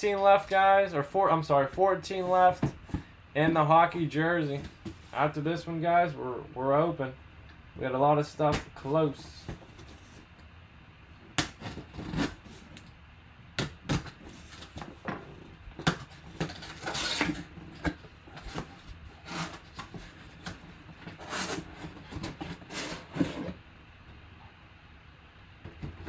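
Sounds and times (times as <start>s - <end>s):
knife cutting cardboard box: 11.4s - 12.8s, 15.8s - 23.6s
knocks scrapes and rustles: 14.2s - 23.6s.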